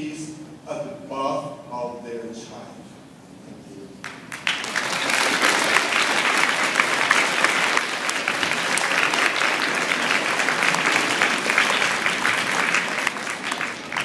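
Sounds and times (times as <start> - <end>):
audience applause: 4.0 - 14.0.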